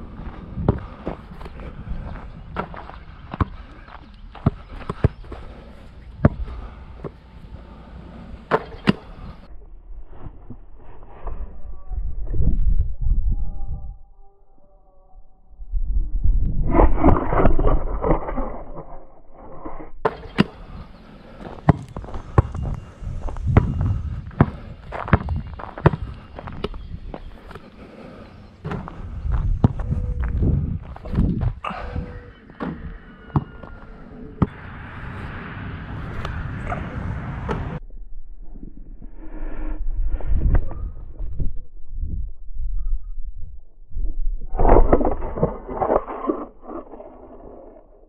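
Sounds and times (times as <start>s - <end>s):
footsteps on gravel: 21.4s - 31.7s
basketball thumps and knocks: 24.4s - 26.0s.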